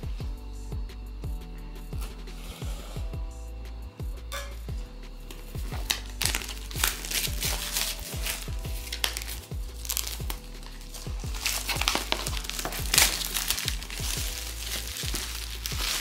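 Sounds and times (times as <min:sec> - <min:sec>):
background music with beat: 0:00.0 - 0:16.0
plastic wrap crinkling: 0:05.8 - 0:16.0.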